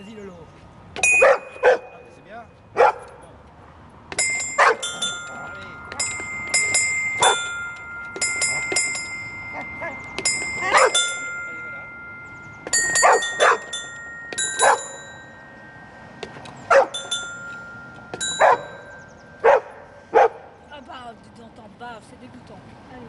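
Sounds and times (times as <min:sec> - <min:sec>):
dog barking: 0:01.2 - 0:01.9, 0:02.8 - 0:03.1, 0:04.6 - 0:04.9, 0:13.0 - 0:13.7, 0:16.7 - 0:17.0, 0:19.4 - 0:20.5
bell-like floor tile chimes: 0:04.2 - 0:19.5.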